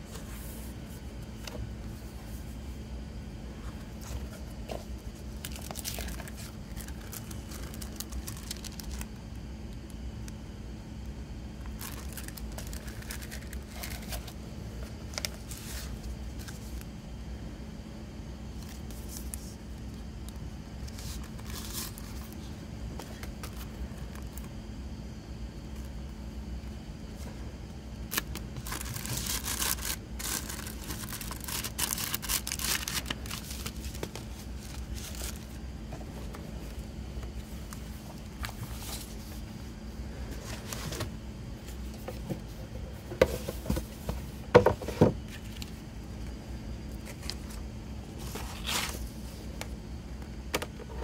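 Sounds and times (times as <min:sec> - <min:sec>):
steady low hum: 0:00.0 - 0:51.0
card rustling: 0:03.7 - 0:09.1, 0:11.7 - 0:16.9, 0:20.8 - 0:24.5, 0:28.1 - 0:39.5
plastic disc sleeves crinkling: 0:03.8 - 0:10.4, 0:11.6 - 0:16.9, 0:18.6 - 0:24.6, 0:28.0 - 0:39.5, 0:46.9 - 0:49.8.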